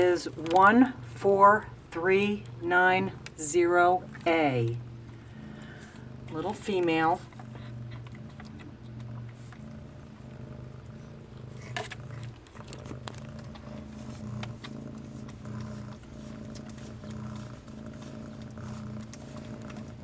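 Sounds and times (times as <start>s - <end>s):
cat purring: 0.0s - 20.0s.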